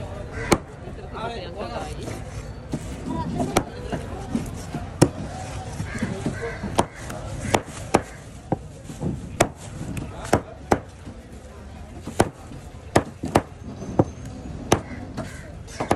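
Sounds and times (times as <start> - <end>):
knife chopping on wooden board: 6.0 - 10.9, 12.0 - 14.1.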